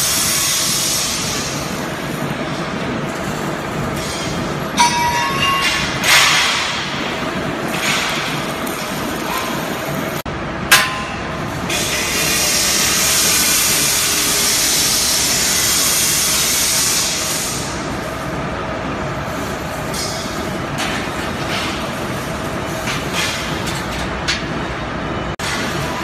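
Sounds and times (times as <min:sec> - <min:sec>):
hiss: 0:00.0 - 0:02.3, 0:11.7 - 0:18.2
workshop noise: 0:00.0 - 0:26.0
metal clang: 0:04.8 - 0:07.0.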